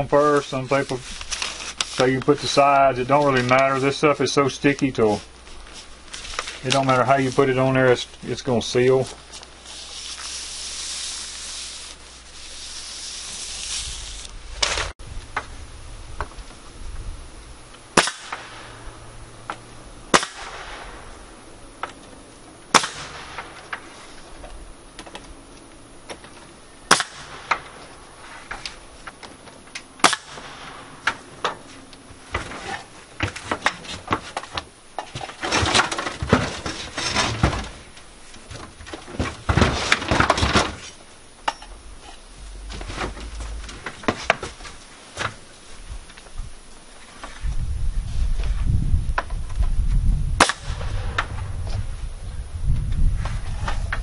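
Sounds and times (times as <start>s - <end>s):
nail gun firing: 18.0s - 18.7s, 20.1s - 20.9s, 22.7s - 23.8s, 26.9s - 27.7s, 30.0s - 31.2s, 50.4s - 50.8s.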